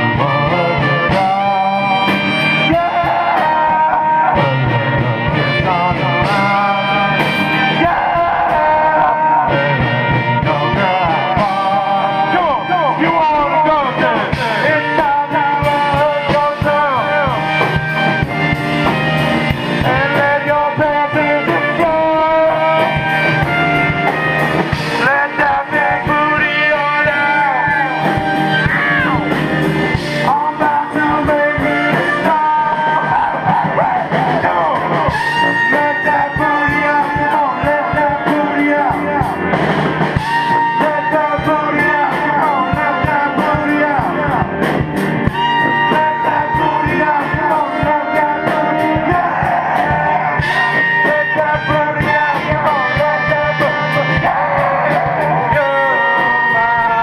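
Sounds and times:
brass section: 0.0s - 57.0s
electric guitar: 0.0s - 57.0s
live band playing: 0.0s - 57.0s
man singing: 0.0s - 57.0s.

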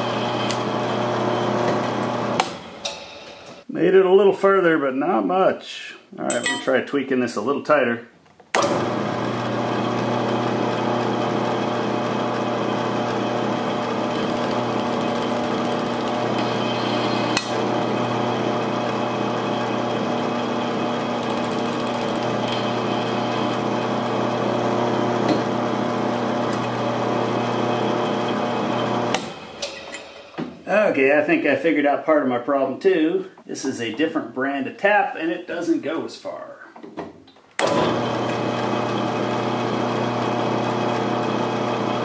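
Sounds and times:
drill press humming: 0.0s - 3.6s, 8.6s - 30.5s, 37.6s - 42.0s.

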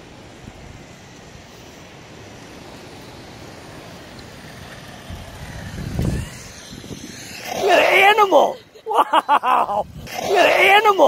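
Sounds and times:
wind buffeting microphone: 3.1s - 11.0s.

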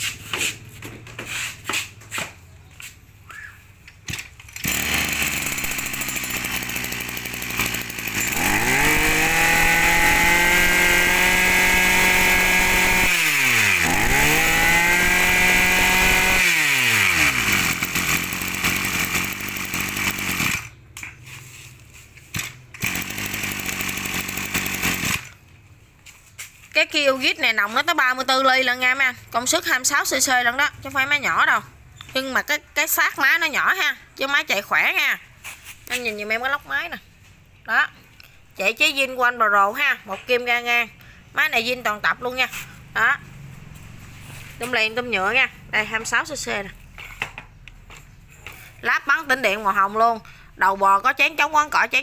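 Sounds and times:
brush cutter engine revving: 4.4s - 20.8s, 21.9s - 25.4s.

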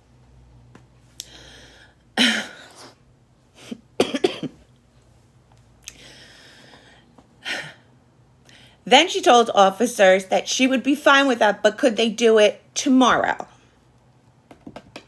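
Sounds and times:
woman coughing: 2.2s - 2.7s, 3.7s - 4.6s
woman clearing throat: 4.0s - 4.6s.

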